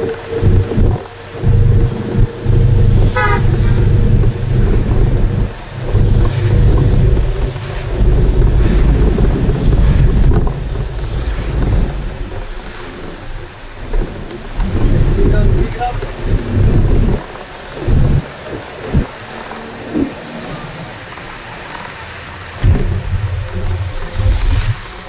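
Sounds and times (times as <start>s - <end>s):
bus engine and road noise: 0.0s - 25.0s
short horn toot: 3.2s - 3.6s.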